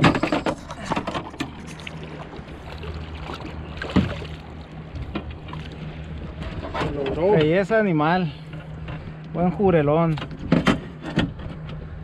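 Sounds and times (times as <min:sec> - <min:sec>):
water splashing: 0:00.0 - 0:06.8
boat motor idling: 0:00.0 - 0:12.0.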